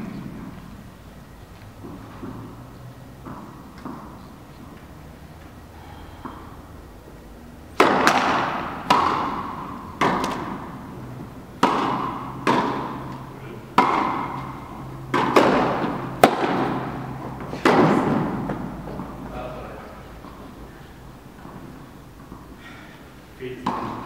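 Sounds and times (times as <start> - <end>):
racquets hitting tennis ball: 0.0 - 24.0
tennis ball bouncing on court: 1.8 - 5.5, 6.2 - 6.6, 7.7 - 19.4, 23.6 - 24.0.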